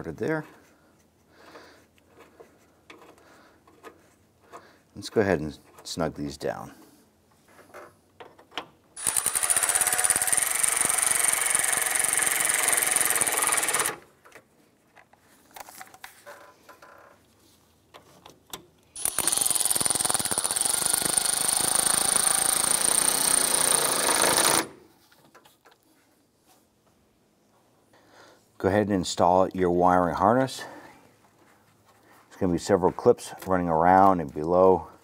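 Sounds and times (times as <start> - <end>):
electric ratchet whining and rattling: 9.0 - 14.0, 19.0 - 24.8.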